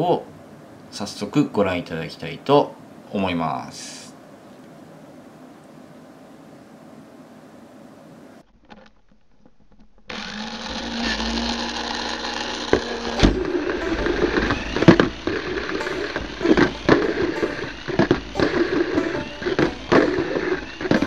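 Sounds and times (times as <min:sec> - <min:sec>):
small electric motor whine: 0:09.7 - 0:21.0
toy car rattling against track: 0:10.0 - 0:14.8.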